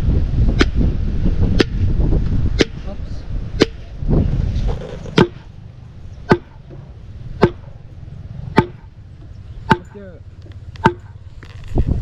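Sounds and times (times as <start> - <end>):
machete chopping: 0.6 - 0.8, 1.6 - 1.9, 2.6 - 2.9, 3.6 - 3.9, 5.1 - 5.5, 6.3 - 6.8, 7.4 - 7.8, 8.5 - 8.9, 9.7 - 10.0, 10.8 - 11.2.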